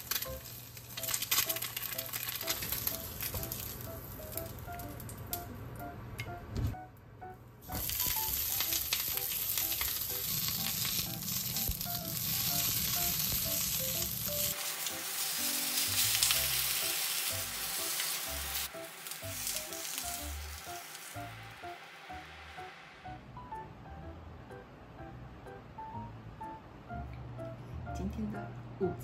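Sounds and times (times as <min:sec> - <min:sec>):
peppers sizzling in a pan: 0:00.0 - 0:05.4, 0:07.6 - 0:22.6.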